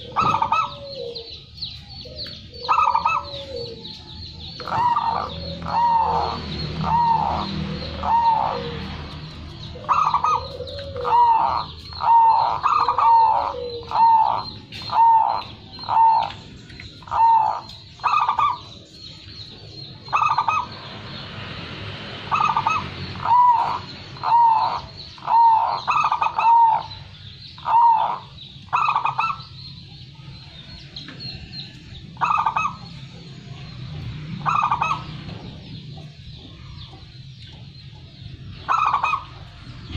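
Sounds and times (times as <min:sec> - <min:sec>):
dove cooing: 0:00.0 - 0:18.8, 0:20.1 - 0:20.8, 0:22.3 - 0:27.0, 0:27.6 - 0:29.8, 0:32.2 - 0:33.0, 0:34.4 - 0:37.0, 0:38.5 - 0:39.9.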